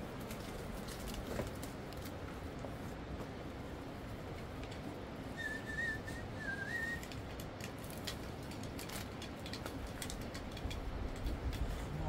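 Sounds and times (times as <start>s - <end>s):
net clicks and rustles: 0.0s - 3.1s, 6.7s - 11.8s
person whistling: 5.4s - 7.0s.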